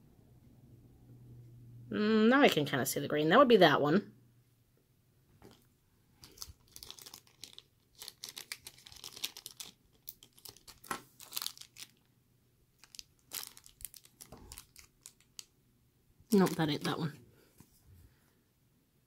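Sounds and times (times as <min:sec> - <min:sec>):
plastic bags crinkling: 0:05.4 - 0:12.1, 0:12.7 - 0:15.5, 0:16.3 - 0:17.1.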